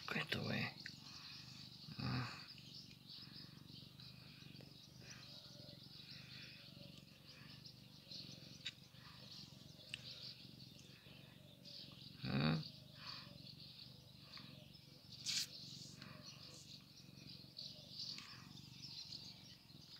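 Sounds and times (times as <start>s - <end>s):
small birds chirping: 0.0s - 19.9s.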